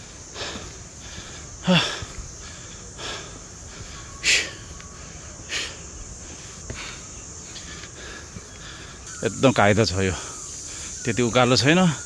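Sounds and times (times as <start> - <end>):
person breathing hard: 0.0 - 9.1, 10.1 - 11.0.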